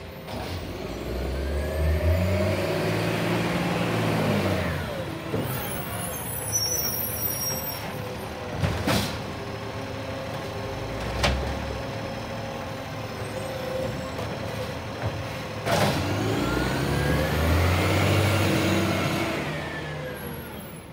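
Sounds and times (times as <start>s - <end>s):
garbage truck diesel engine: 0.0s - 20.9s
hydraulic whine: 4.3s - 8.0s.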